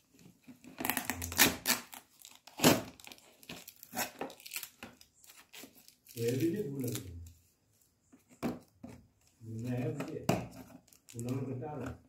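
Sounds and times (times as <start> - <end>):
plastic wrapping crinkling: 0.1 - 7.3, 10.6 - 11.8.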